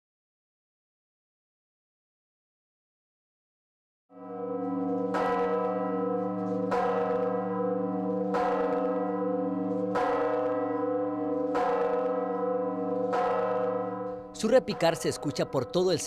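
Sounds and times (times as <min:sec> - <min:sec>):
large church bell ringing: 0:04.1 - 0:16.0.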